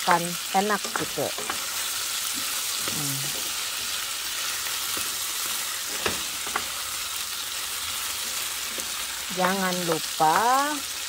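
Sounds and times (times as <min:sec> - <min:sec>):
food sizzling in a frying pan: 0:00.0 - 0:11.0
wooden spatula knocking pan: 0:08.7 - 0:10.8.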